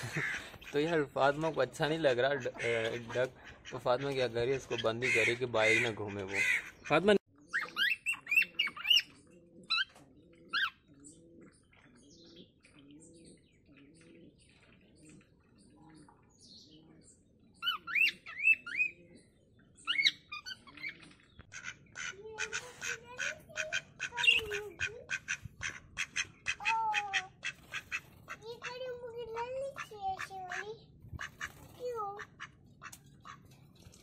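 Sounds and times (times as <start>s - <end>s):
ducks quacking: 0.0s - 9.0s, 20.5s - 33.4s
birds chirping: 0.0s - 34.0s.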